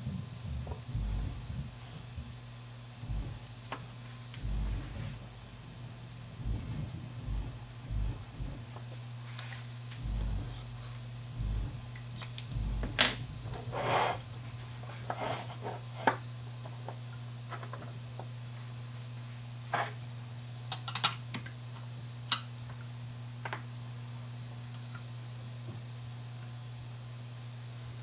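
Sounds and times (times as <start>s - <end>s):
steady low hum: 0.0s - 20.8s.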